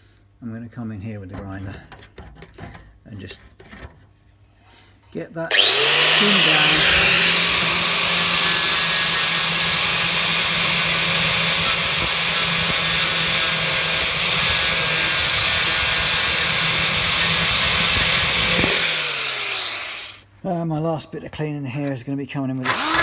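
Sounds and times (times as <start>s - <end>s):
grinder grinding metal: 5.5s - 20.2s, 22.7s - 23.0s.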